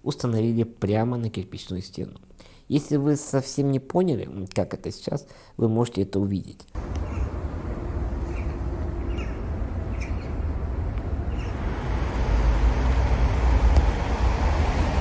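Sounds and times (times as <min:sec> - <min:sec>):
bird chirps: 0:06.8 - 0:07.4, 0:08.0 - 0:10.5, 0:11.3 - 0:11.6
heavy low rumble: 0:06.8 - 0:15.0.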